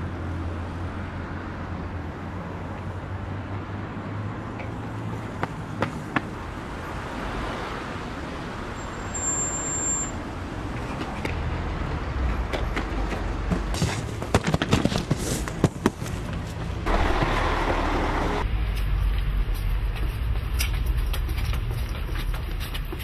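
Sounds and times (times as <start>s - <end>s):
street traffic noise: 0.0s - 23.0s
rapid knocks and bumps: 12.6s - 17.2s.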